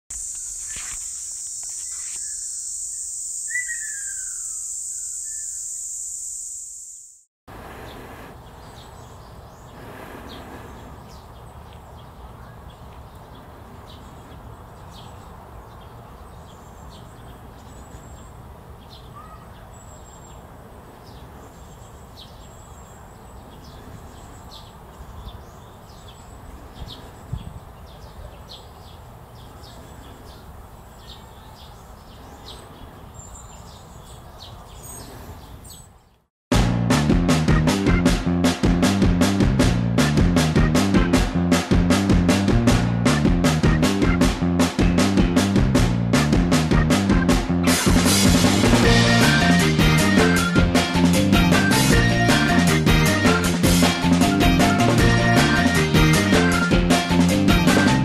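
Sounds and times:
steady high buzz: 0:00.1 - 0:07.3
fledgling bird begging calls: 0:03.4 - 0:05.7.

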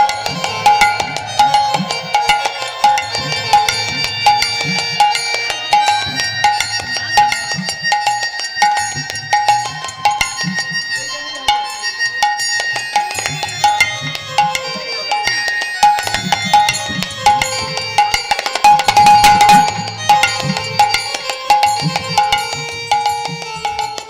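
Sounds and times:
sharp percussive strikes: 0:00.0 - 0:24.0
sustained melody line: 0:00.0 - 0:24.0.

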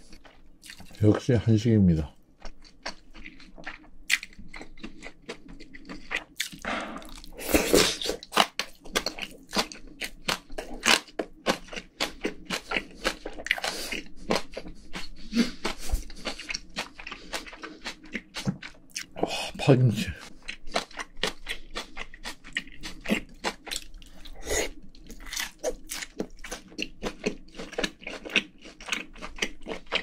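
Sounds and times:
close chewing with wet mouth clicks: 0:00.0 - 0:01.0, 0:02.4 - 0:19.3, 0:20.2 - 0:30.0.

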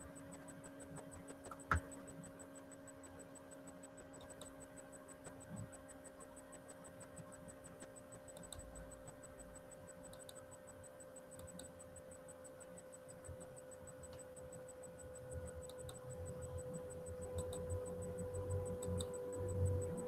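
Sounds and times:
faint electrical hum: 0:00.0 - 0:20.0
soft clicks: 0:10.1 - 0:10.5, 0:11.3 - 0:11.8.

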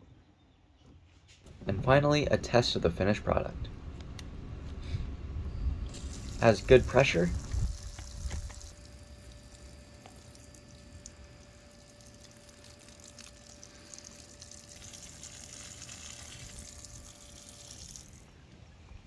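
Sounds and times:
faint steady whine: 0:01.4 - 0:19.0
water spraying onto gravel: 0:05.9 - 0:18.3.

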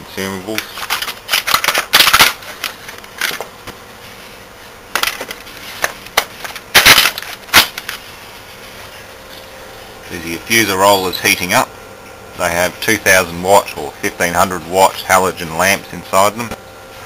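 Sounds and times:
faint machine hum: 0:00.0 - 0:17.0.

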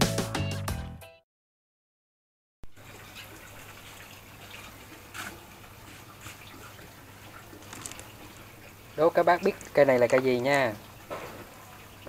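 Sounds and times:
water trickling: 0:02.7 - 0:12.0
rustling of roots and pebbles: 0:03.9 - 0:11.6.

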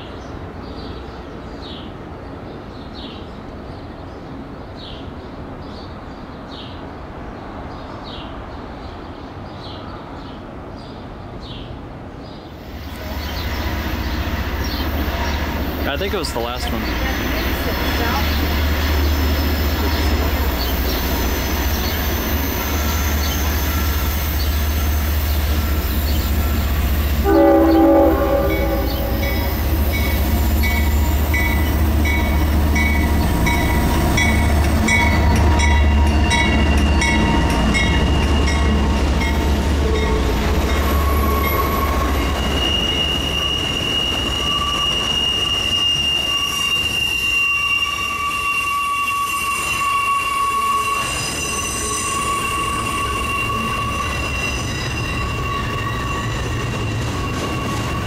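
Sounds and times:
diesel locomotive rumble: 0:12.9 - 0:43.0
high wheel squeal: 0:17.8 - 0:34.4, 0:35.0 - 0:58.0
train horn blast: 0:27.2 - 0:29.7.

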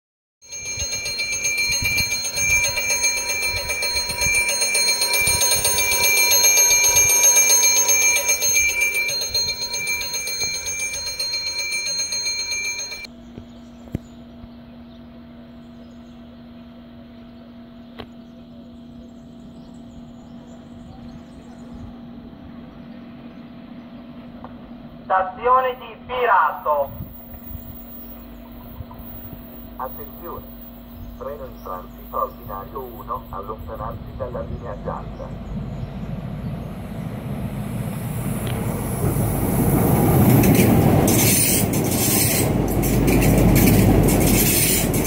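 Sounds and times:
railway warning bell ringing: 0:00.4 - 0:13.1, 0:26.5 - 0:45.0.

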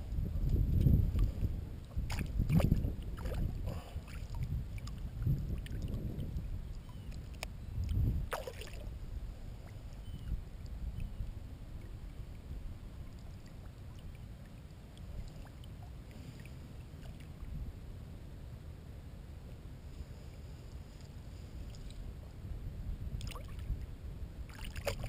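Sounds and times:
water sloshing and splashing: 0:00.4 - 0:08.9, 0:23.2 - 0:23.8, 0:24.5 - 0:25.0.

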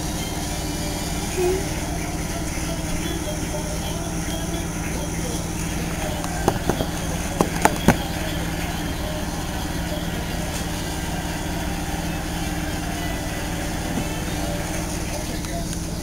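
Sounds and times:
paver engine running: 0:00.0 - 0:16.0
sharp knocks: 0:06.3 - 0:08.1.

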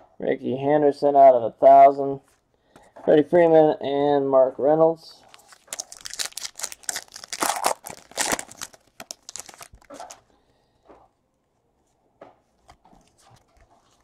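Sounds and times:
wrapper tearing and crinkling: 0:05.2 - 0:10.2.

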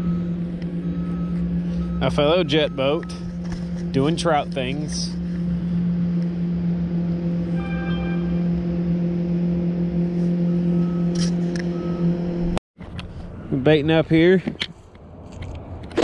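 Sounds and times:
boat motor humming: 0:00.0 - 0:12.6.

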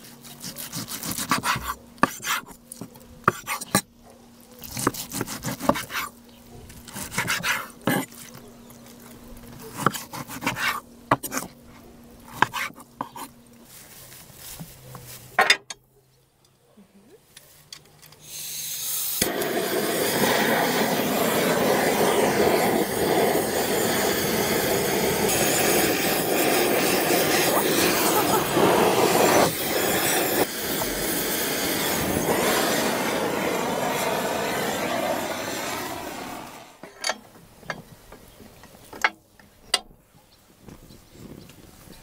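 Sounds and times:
gas torches hissing: 0:18.2 - 0:36.9.

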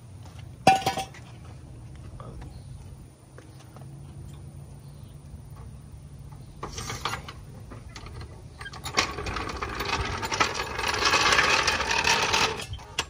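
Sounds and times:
jack rolling on concrete: 0:00.6 - 0:01.3, 0:06.3 - 0:13.0.

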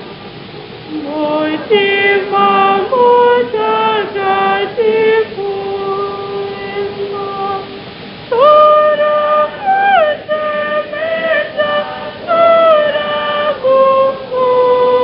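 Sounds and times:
voices singing worship song: 0:00.0 - 0:15.0.

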